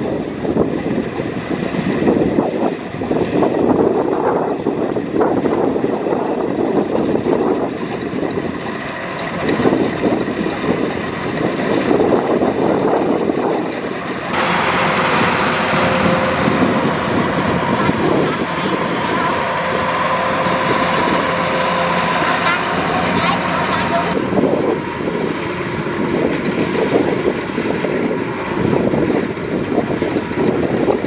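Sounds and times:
combine harvester running: 0.0 - 31.0
steady hum: 7.4 - 31.0.

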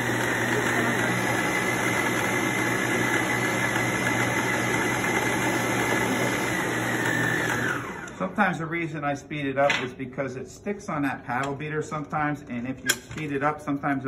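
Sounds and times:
stand mixer motor whine: 0.0 - 8.4.

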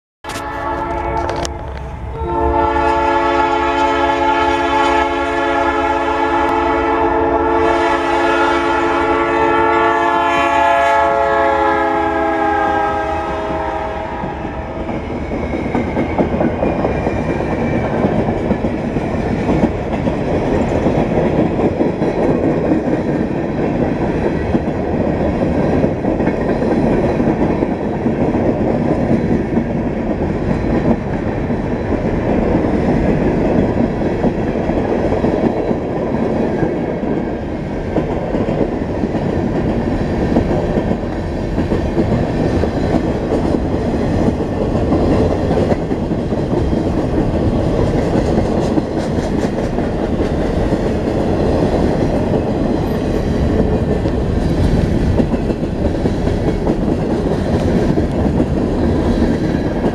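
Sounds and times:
locomotive air horn blast: 0.3 - 14.8
wheels clacking on rails: 13.2 - 59.9.

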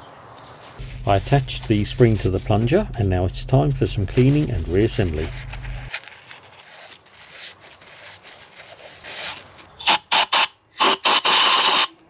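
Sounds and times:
soft rubbing: 0.4 - 9.8.

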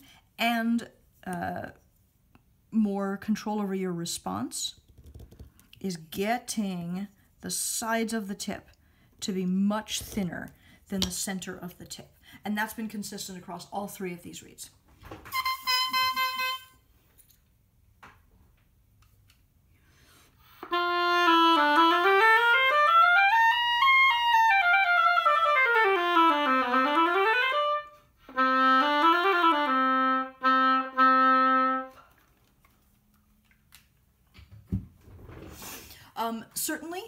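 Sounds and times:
oboe playing: 15.3 - 16.8, 20.6 - 32.1.

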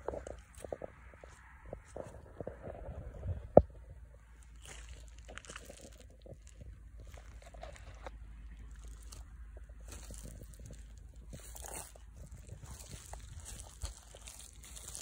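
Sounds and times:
boot squelching in wet dung: 4.4 - 7.9, 8.7 - 15.0.

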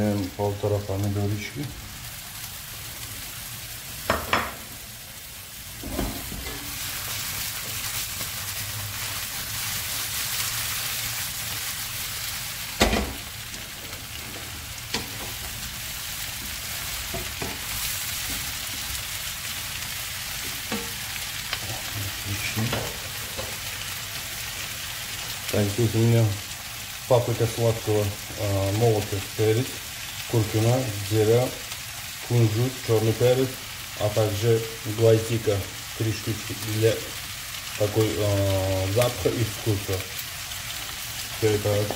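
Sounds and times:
food sizzling in a pan: 0.0 - 41.9
wooden spatula knocking on pan: 4.1 - 4.7, 17.1 - 17.6.

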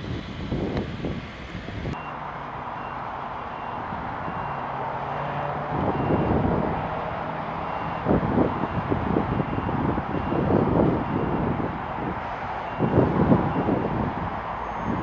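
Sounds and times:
gusty low rumbles: 0.0 - 2.0, 5.5 - 15.0
jet engines roaring: 0.0 - 15.0
faint high beep: 2.0 - 2.2.

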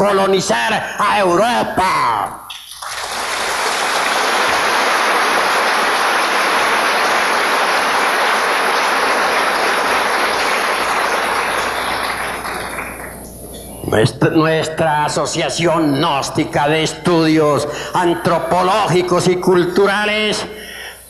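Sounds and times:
audience applauding: 2.5 - 13.3.

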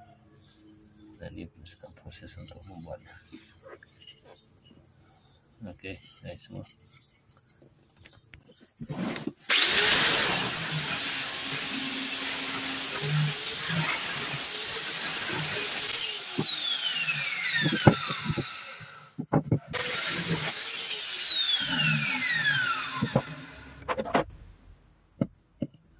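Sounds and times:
angle grinder whining: 8.9 - 24.7
grinder spinning down: 9.5 - 24.7.

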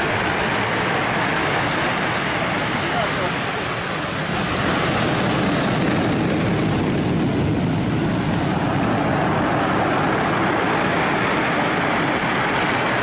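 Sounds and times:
waves breaking on cobble beach: 0.0 - 13.0.

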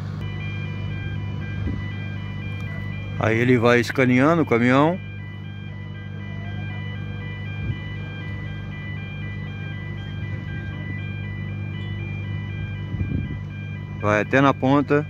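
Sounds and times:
low engine hum: 0.0 - 15.0
high electronic warning beeps: 0.2 - 15.0.

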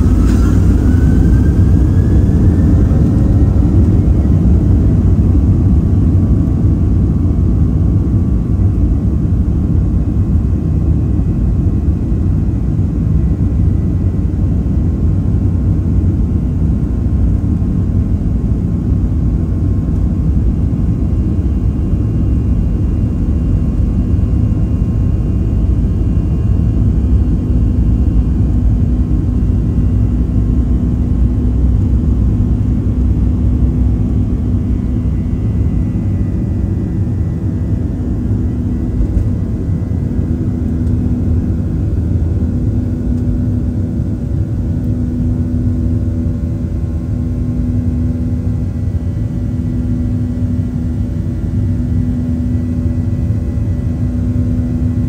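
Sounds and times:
faint whining tones: 0.0 - 7.6
jet engine low rumble: 0.0 - 55.0.

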